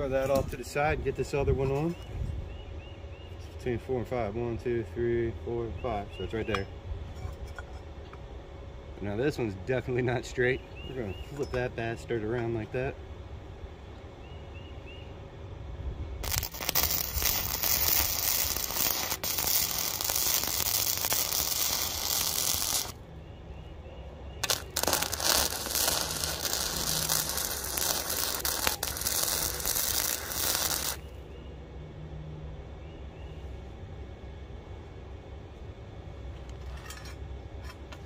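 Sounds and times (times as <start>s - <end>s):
welding arc crackling: 16.2s - 23.0s, 24.4s - 31.0s.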